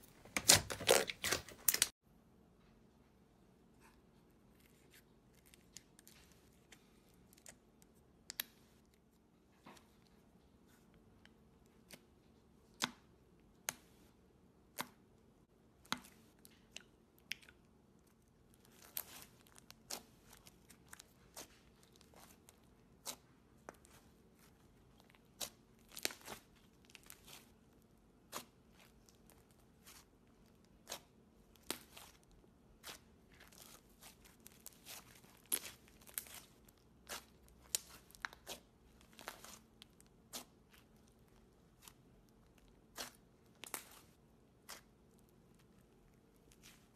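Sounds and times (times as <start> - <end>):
slime popping and crackling: 32.8 - 41.9.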